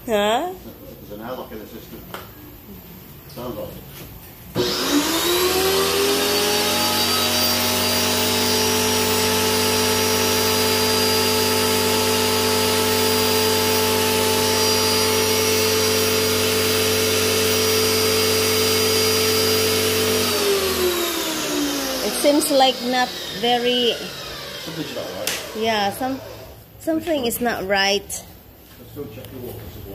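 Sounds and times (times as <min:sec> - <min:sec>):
pressure washer motor humming: 0:04.6 - 0:26.6.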